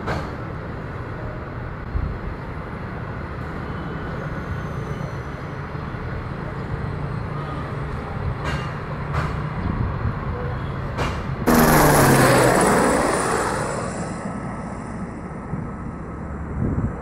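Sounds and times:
helicopter passing overhead: 0:11.4 - 0:16.4
distant jet airliner rumble: 0:11.5 - 0:16.4.

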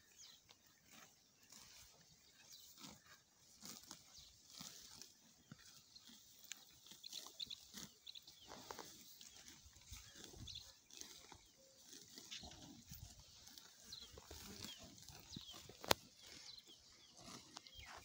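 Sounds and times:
grass being torn and chewed: 0:00.0 - 0:18.0.

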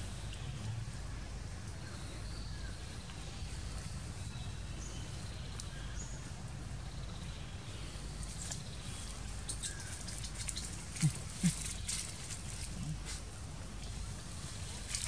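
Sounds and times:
light clicks and rustles: 0:08.2 - 0:15.0.

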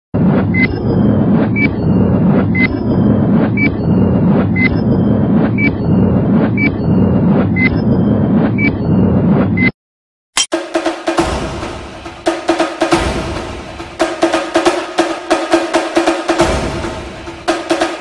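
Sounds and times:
timer beeps with clicks: 0:02.6 - 0:02.9, 0:03.6 - 0:06.0, 0:06.6 - 0:09.0.

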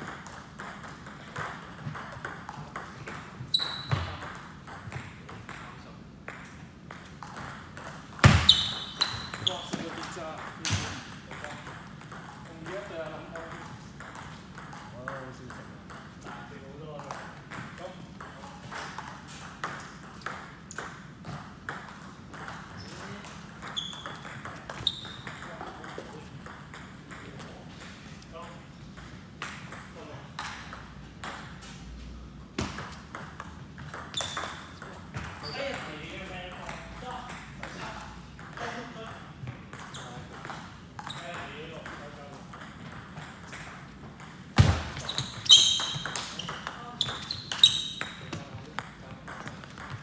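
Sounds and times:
table tennis ball taps: 0:32.6 - 0:35.3.

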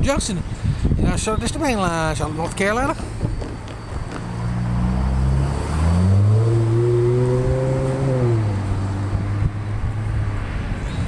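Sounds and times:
engine running and revving: 0:03.4 - 0:11.0.

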